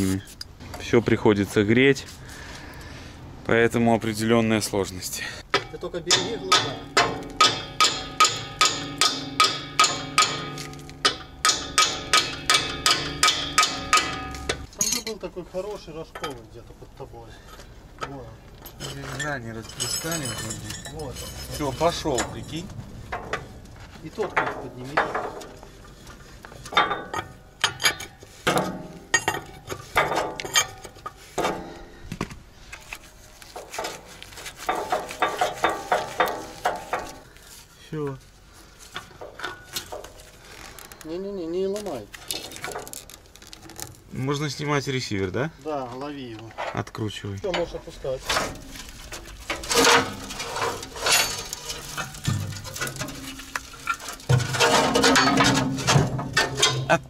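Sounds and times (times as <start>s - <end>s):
metal scraping and rustling: 0.0s - 45.1s, 45.7s - 57.0s
wrenches clicking and clanking: 5.5s - 15.3s, 17.5s - 31.8s, 32.7s - 37.4s, 38.9s - 44.2s, 46.4s - 57.0s.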